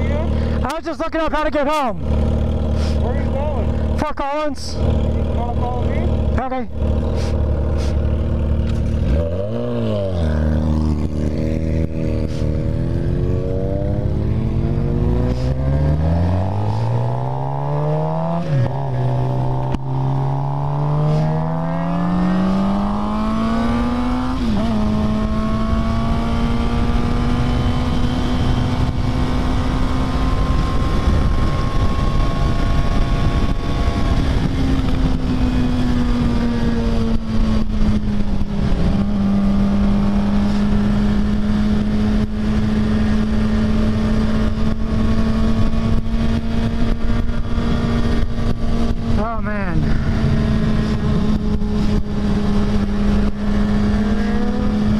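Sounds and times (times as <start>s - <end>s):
motorcycle engine accelerating: 1.6s - 54.9s
wind rushing: 8.9s - 26.7s.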